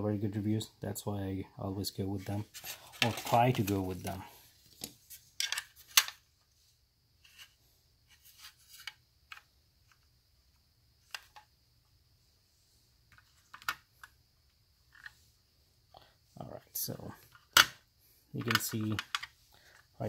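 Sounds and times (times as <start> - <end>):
clicks of computer parts handled: 4.7 - 6.2, 18.4 - 19.3.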